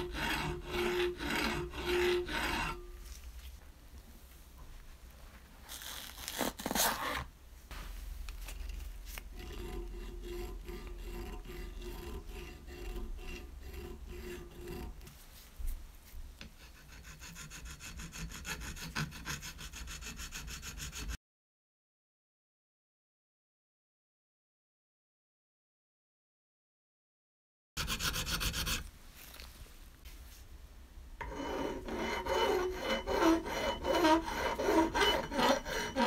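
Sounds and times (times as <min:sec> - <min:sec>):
hand file rasping on metal: 0:00.0 - 0:02.9, 0:09.3 - 0:15.1, 0:16.5 - 0:21.2, 0:27.8 - 0:28.9, 0:31.2 - 0:36.0
loud scrape: 0:31.2 - 0:36.0.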